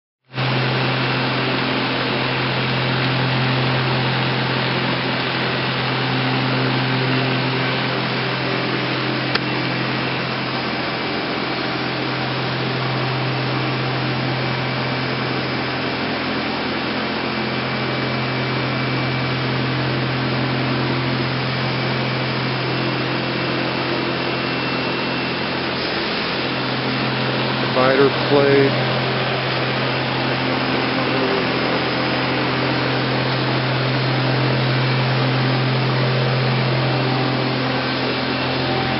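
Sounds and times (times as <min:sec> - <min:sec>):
machine hum with hiss: 0:00.4 - 0:38.9.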